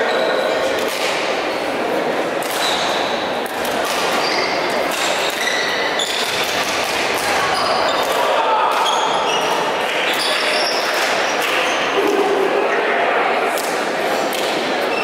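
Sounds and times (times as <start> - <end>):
rackets hitting shuttlecock: 0.8 - 1.4, 2.4 - 10.2
sports shoes squeaking: 2.5 - 3.3, 3.9 - 8.2, 8.8 - 12.0.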